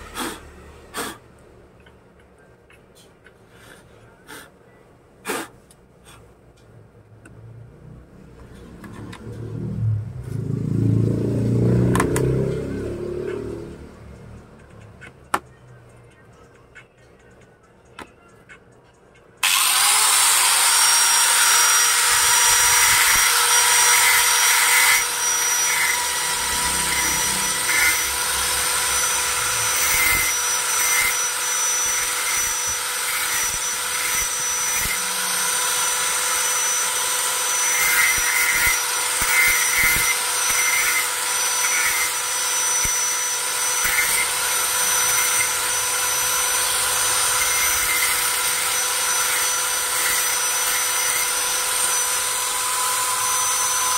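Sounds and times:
angle grinder whining: 19.4 - 53.9
grinder grinding metal blade: 19.4 - 53.9.

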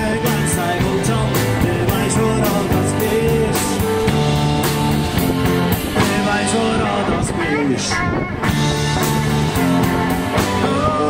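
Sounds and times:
drum kit beat: 0.0 - 7.6, 8.4 - 11.0
guitars: 0.0 - 11.0
person singing: 6.0 - 8.7, 10.4 - 11.0.

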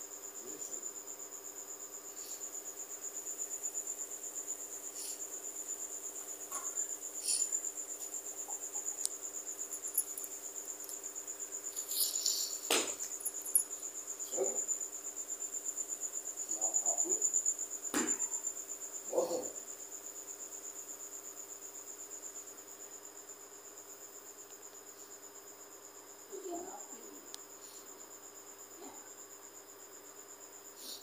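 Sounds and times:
cricket chirping: 0.0 - 31.0
brief knock: 17.9 - 18.3.

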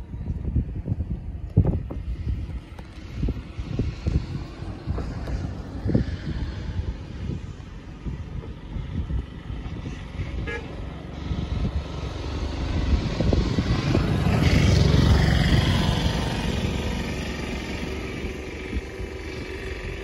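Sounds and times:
motor vehicle rumbling past: 0.0 - 20.0
wind buffeting microphone: 0.0 - 20.0
short horn toot: 10.2 - 10.8.

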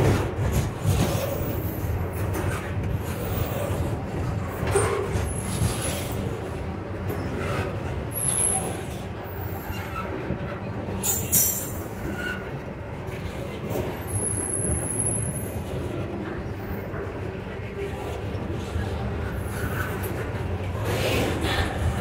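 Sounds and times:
railway clatter and knocks: 0.0 - 22.0
train wheels rumbling on rails: 0.0 - 22.0
high-pitched wheel squeals: 11.0 - 12.6.

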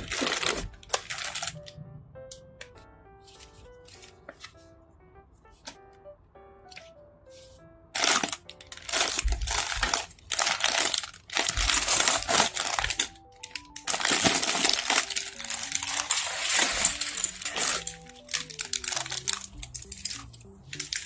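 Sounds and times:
plastic bags crinkling: 0.0 - 1.7, 8.0 - 21.0.

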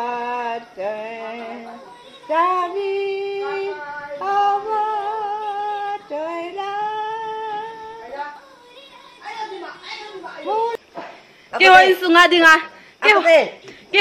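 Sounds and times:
elderly woman singing: 0.0 - 10.8.

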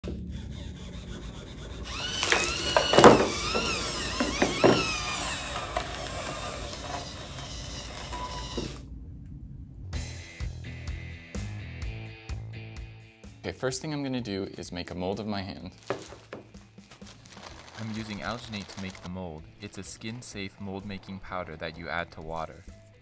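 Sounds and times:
servo motors whining: 0.0 - 8.8, 17.2 - 19.1
music: 10.0 - 23.0.

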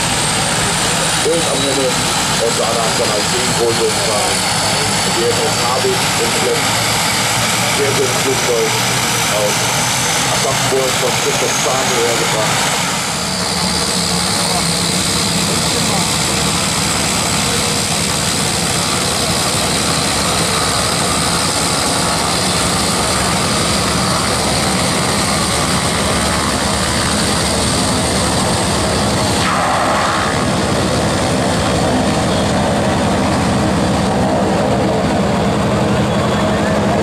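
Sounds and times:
propeller drone: 0.0 - 37.0
high turbine hiss: 21.3 - 32.2.

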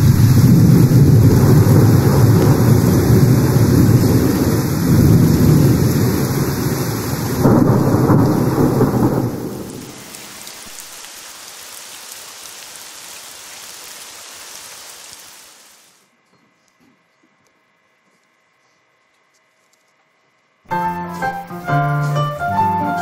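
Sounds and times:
thunder rumble: 0.0 - 10.5
heavy rain: 0.0 - 16.0.

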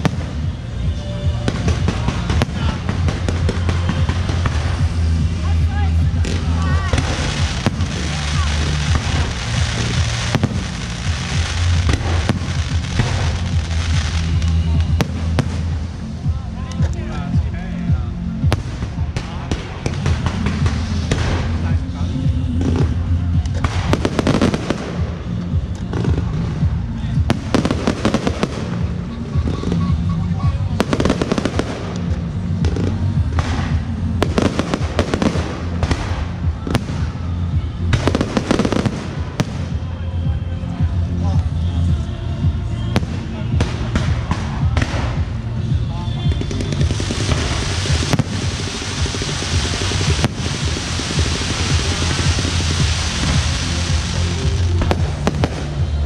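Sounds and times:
firework bangs: 0.0 - 16.4, 18.4 - 40.0, 43.0 - 56.0
fireworks crackling: 0.0 - 56.0
music with heavy bass: 0.0 - 56.0
fireworks shells bursting: 46.4 - 55.8.

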